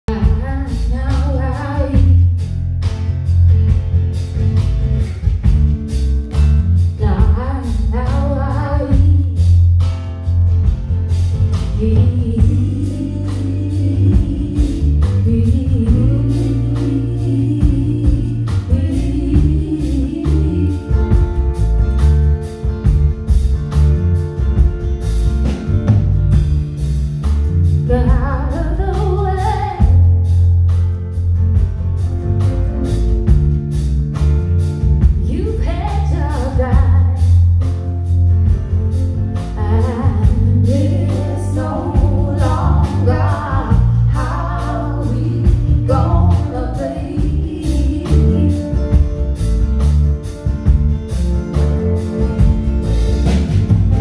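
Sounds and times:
heavy bass: 0.0s - 54.0s
woman singing: 0.1s - 2.4s, 7.0s - 9.6s, 11.8s - 21.4s, 27.8s - 30.3s, 35.2s - 37.4s, 39.4s - 49.0s.

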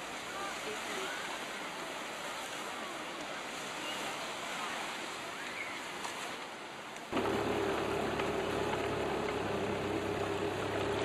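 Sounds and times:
surf and wind: 0.0s - 11.0s
boat motor humming: 7.1s - 11.0s.

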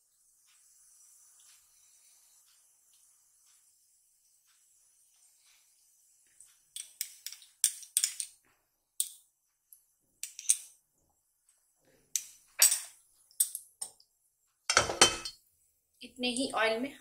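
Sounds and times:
spoon clinking in glass bowl: 14.7s - 15.4s.

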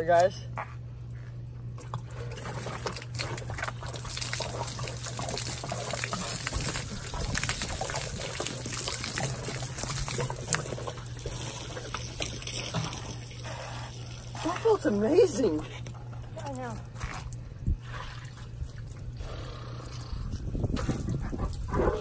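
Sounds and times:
water running and splashing: 2.2s - 17.4s.

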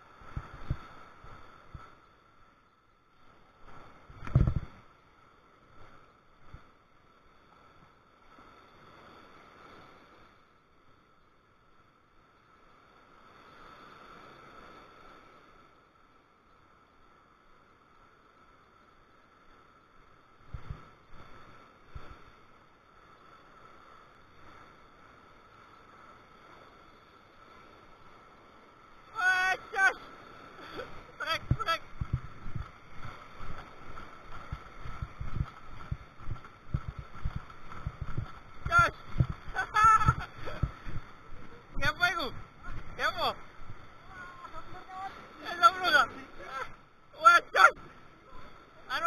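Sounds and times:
small waves washing on sand: 0.0s - 49.0s
low thumps: 31.4s - 33.7s, 34.3s - 41.1s.

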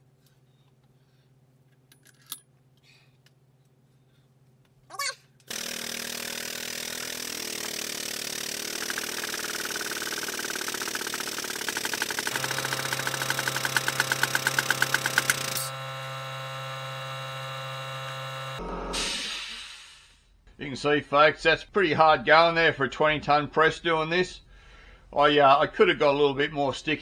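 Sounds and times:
air-driven pump pulsing: 5.5s - 20.2s.

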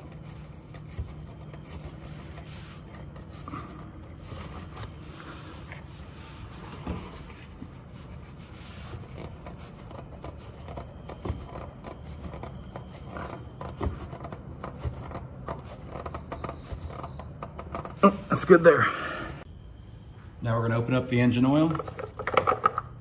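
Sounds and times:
rag rubbing on oil filter: 0.0s - 18.5s.

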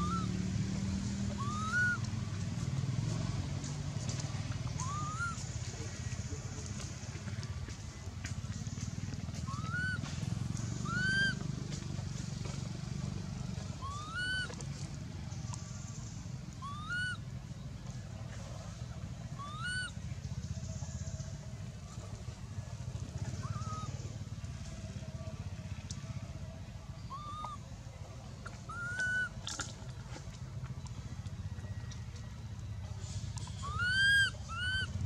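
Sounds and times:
infant monkey cooing: 0.0s - 0.3s, 1.4s - 2.0s, 4.8s - 5.4s, 9.4s - 10.0s, 10.8s - 11.4s, 13.7s - 14.5s, 16.6s - 17.2s, 19.3s - 20.0s, 23.2s - 24.1s, 27.0s - 27.6s, 28.6s - 29.4s, 33.4s - 35.0s
steady low rumble: 1.0s - 35.0s.

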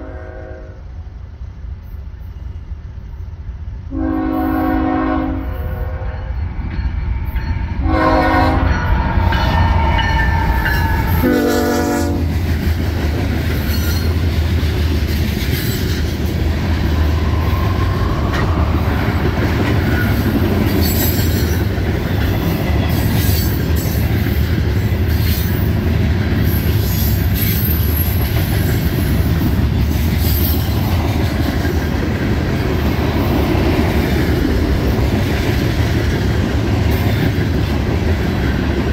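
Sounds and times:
locomotive air horn blasts: 0.0s - 0.8s, 3.9s - 6.2s, 7.8s - 8.9s, 11.1s - 12.3s
train rumbling past: 0.0s - 38.9s.

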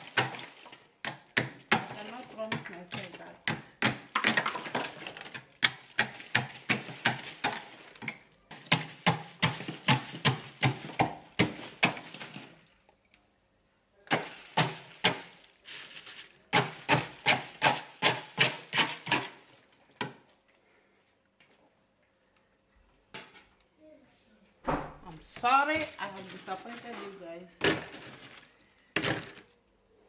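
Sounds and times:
ice being chipped off freezer wall: 0.0s - 12.7s, 14.1s - 20.3s, 25.2s - 29.5s.

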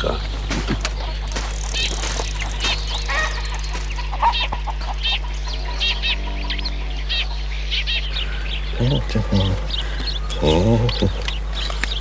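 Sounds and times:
sparrows chirping: 0.0s - 12.0s
steady low hum: 0.0s - 12.0s.

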